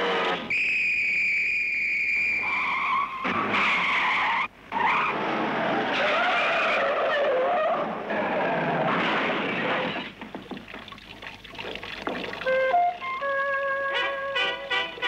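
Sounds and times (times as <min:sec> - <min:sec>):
cartoon tyres screeching: 0:02.1 - 0:10.2.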